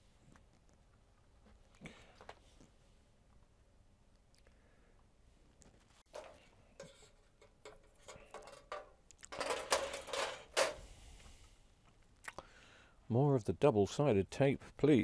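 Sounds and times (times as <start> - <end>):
handling clicks and rustles: 5.6 - 10.8
rustling and clatter: 5.6 - 10.9.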